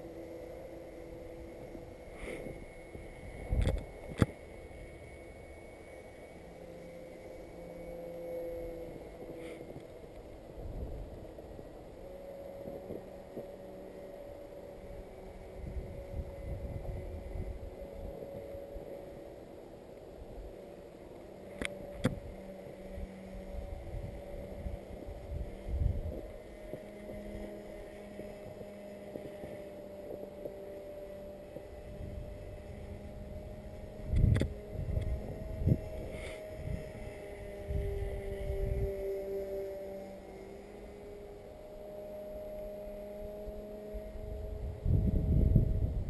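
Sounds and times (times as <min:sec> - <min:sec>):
wind rumbling on microphone: 0:00.0 - 0:04.8, 0:09.0 - 0:11.8, 0:14.4 - 0:19.1, 0:21.6 - 0:39.5, 0:43.5 - 0:46.0
electric model plane motors droning: 0:00.0 - 0:46.0
wind gust on microphone: 0:31.9 - 0:39.0, 0:44.3 - 0:46.0.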